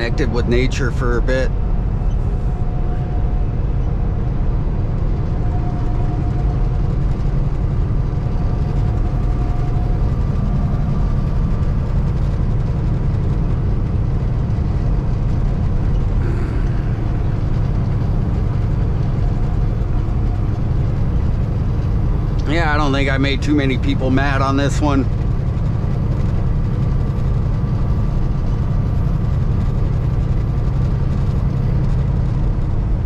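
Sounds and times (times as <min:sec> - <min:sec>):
diesel truck engine droning: 0:00.0 - 0:33.0.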